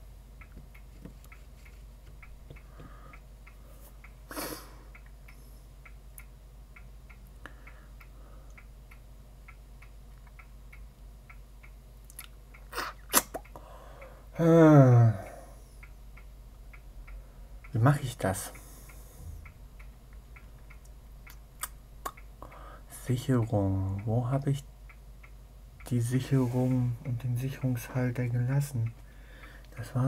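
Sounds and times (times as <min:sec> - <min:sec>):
faint regular ticking: 0:00.0 - 0:12.7, 0:13.4 - 0:30.0
mains hum: 0:00.0 - 0:30.0
short breath: 0:02.7 - 0:04.9, 0:13.6 - 0:14.3, 0:22.4 - 0:22.9, 0:29.1 - 0:29.7
man saying hmm: 0:14.4 - 0:15.6.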